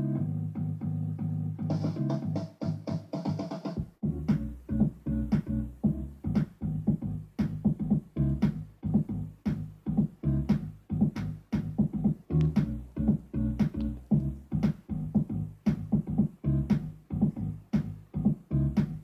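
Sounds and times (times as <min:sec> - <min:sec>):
drum-machine beat: 0:01.6 - 0:19.0
heavy bass line: 0:03.8 - 0:19.0.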